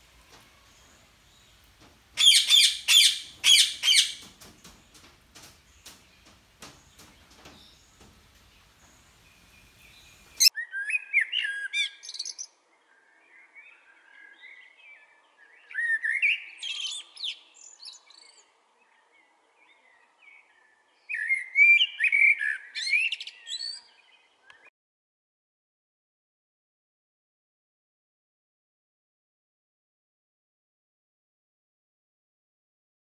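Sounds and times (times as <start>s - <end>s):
blackbird singing: 2.2s - 4.3s, 5.7s - 24.7s
faint clicks: 4.2s - 9.3s.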